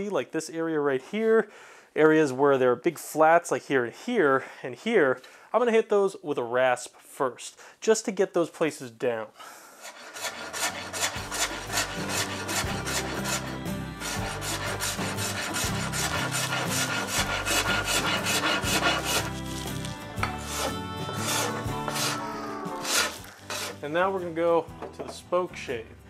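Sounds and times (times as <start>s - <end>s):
wood rasp filing board: 9.8s - 23.8s.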